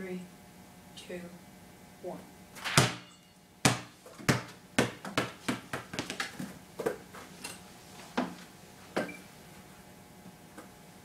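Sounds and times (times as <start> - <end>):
basketball bouncing on concrete: 2.8 - 7.0.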